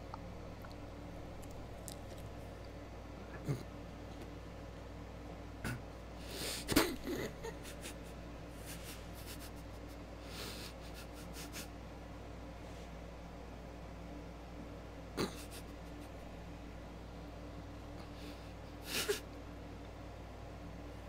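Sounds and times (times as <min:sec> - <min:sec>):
man chewing: 0:00.0 - 0:02.8
low steady hum: 0:00.0 - 0:21.0
breathy nose snort: 0:15.2 - 0:15.7.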